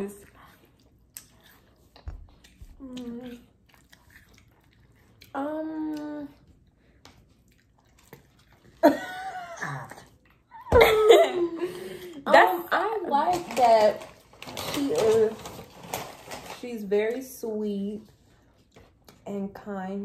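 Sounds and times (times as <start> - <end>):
people chewing: 0.0 - 10.7.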